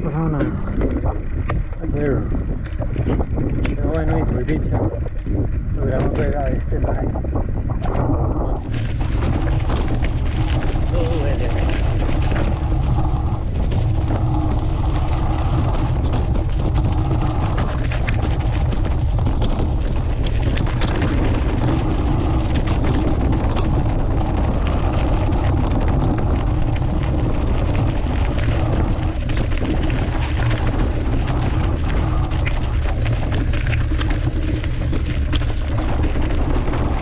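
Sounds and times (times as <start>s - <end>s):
bike rolling on stony dirt road: 0.0s - 37.0s
wind buffeting microphone: 0.0s - 37.0s
stones clicking and knocking: 7.8s - 37.0s.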